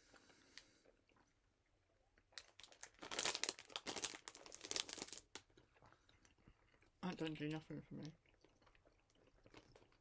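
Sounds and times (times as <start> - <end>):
snack packet crinkling: 2.1 - 6.9, 8.4 - 10.0.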